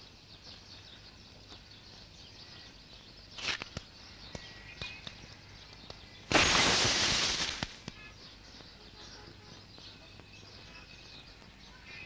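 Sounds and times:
faint bird chirps: 0.0 - 12.0
brief rustle: 3.4 - 3.9.

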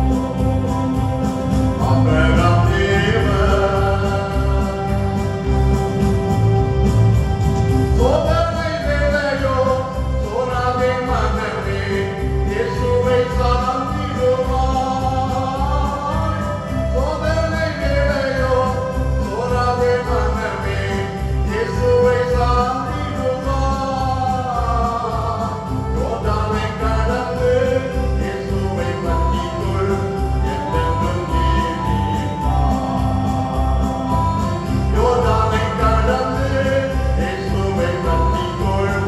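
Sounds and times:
instrumental accompaniment: 0.0 - 39.0.

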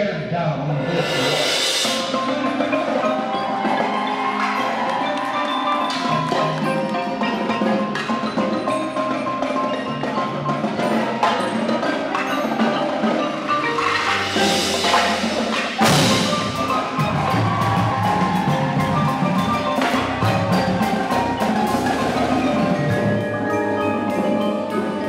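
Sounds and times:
percussion ensemble playing: 0.6 - 25.0
marimba melody: 0.7 - 25.0
cymbal crash: 0.8 - 3.1.

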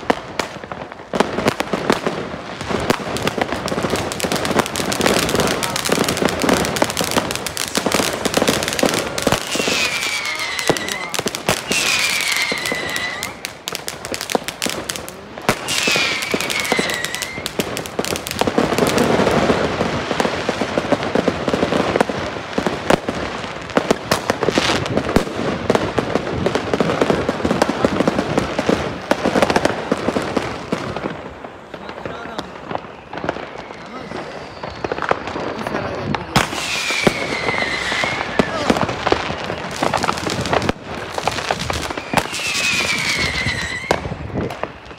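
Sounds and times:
firecrackers crackling: 0.0 - 44.9
fireworks banging: 0.0 - 44.9
whistling fireworks: 0.0 - 44.9.

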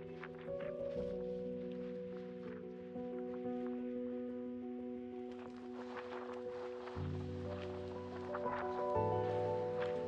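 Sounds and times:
music with long held notes: 0.0 - 10.0.

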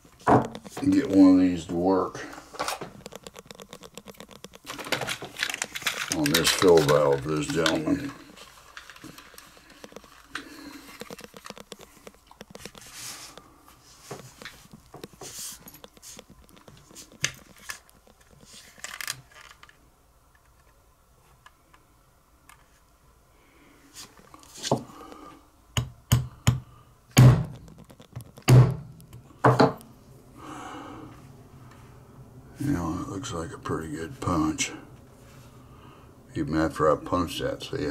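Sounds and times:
small parts clicking: 2.6 - 13.4, 14.3 - 20.8.

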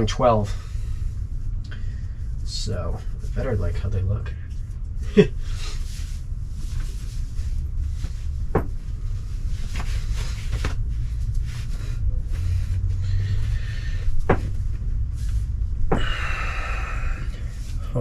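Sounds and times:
low rumble: 0.0 - 18.0
fabric rustling: 5.5 - 15.9
sharp knocks: 8.5 - 8.8.

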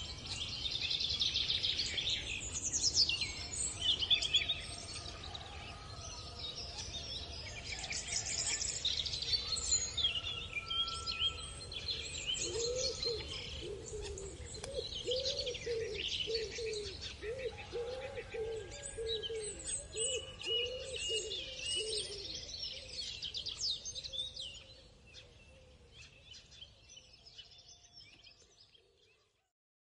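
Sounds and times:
small birds chirping and singing: 0.0 - 29.5
lower repeated bird call: 9.4 - 23.4.

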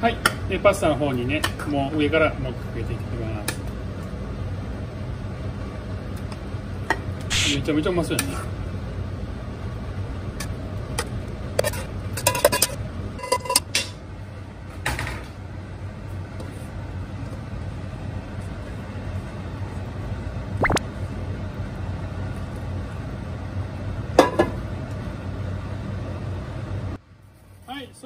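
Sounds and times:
steady low hum: 6.6 - 14.6.

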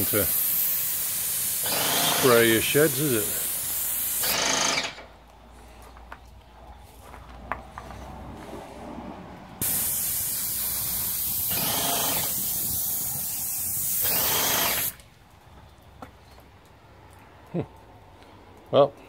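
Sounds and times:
paint spray gun hissing: 0.0 - 4.4, 9.6 - 15.0.

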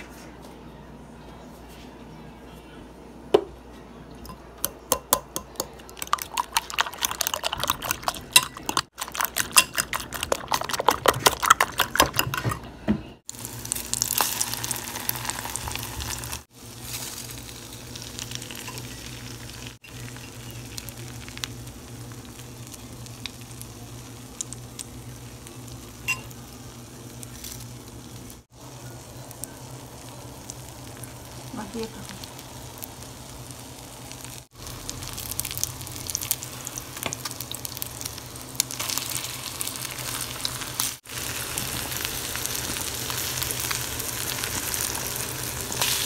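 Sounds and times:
eggs beaten in glass bowl: 4.6 - 12.7
bread frying in oil sizzling: 13.3 - 46.0.

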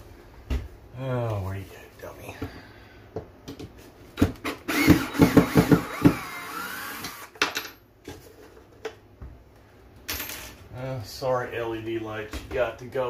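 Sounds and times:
drill motor whining: 4.4 - 7.3.

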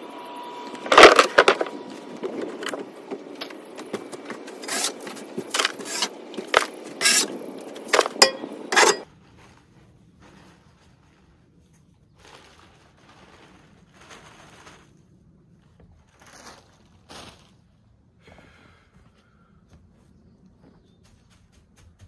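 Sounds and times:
shovel scraping wooden floor: 0.8 - 9.1.

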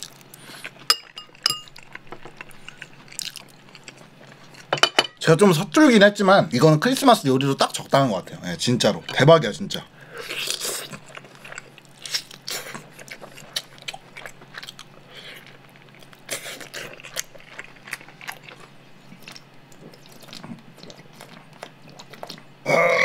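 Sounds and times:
man chewing meat: 0.0 - 4.7, 10.0 - 23.0.

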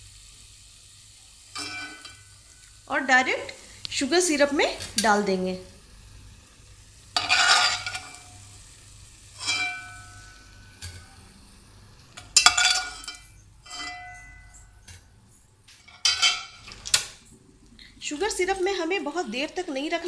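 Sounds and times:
steel spoon clinking on steel bowl: 9.4 - 10.3, 12.4 - 14.9.

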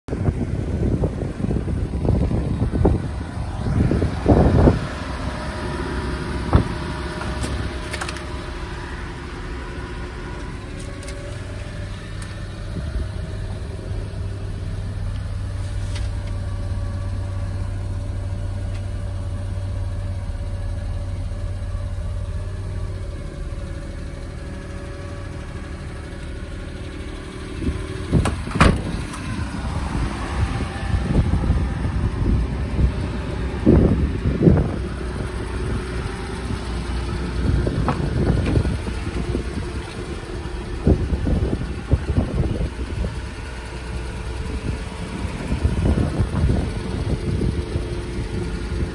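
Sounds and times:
wind buffeting microphone: 0.1 - 7.7, 27.4 - 48.9
car engine idling: 0.1 - 48.9
car door thumping shut: 28.1 - 29.0, 37.8 - 38.6.

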